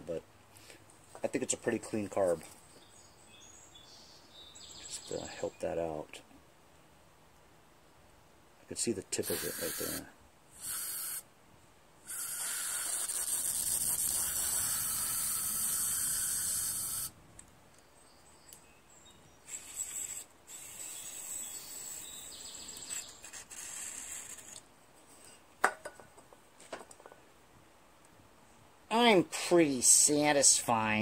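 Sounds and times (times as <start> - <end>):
aerosol spray hissing: 9.2 - 10.0, 10.6 - 11.2.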